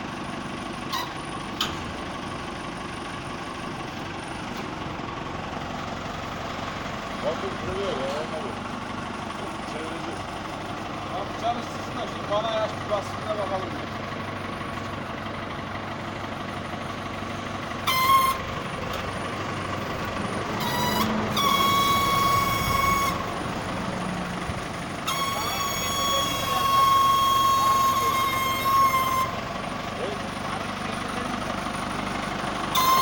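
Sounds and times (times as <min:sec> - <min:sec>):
tractor engine idling: 0:00.0 - 0:33.0
high horn blasts: 0:17.8 - 0:18.5, 0:20.5 - 0:23.5, 0:25.0 - 0:29.6, 0:32.7 - 0:33.0.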